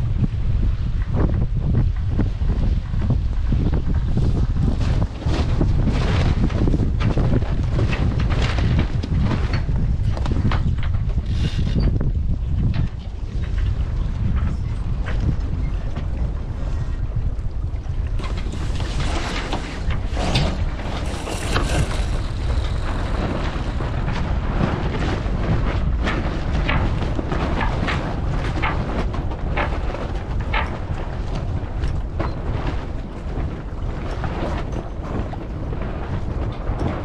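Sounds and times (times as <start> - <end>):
wind buffeting microphone: 0.0 - 37.0
water rushing along hull: 13.1 - 37.0.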